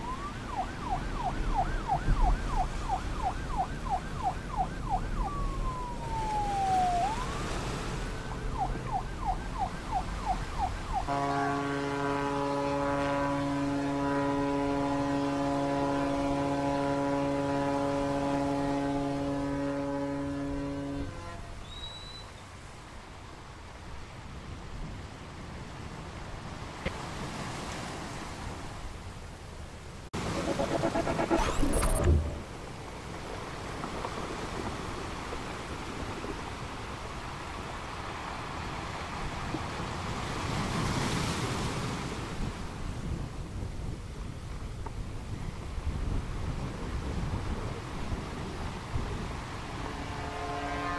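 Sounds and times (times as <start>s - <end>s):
sea wash: 0.0s - 21.2s, 22.6s - 50.9s
ferry horn blast: 11.0s - 21.6s, 30.2s - 32.5s, 49.9s - 50.9s.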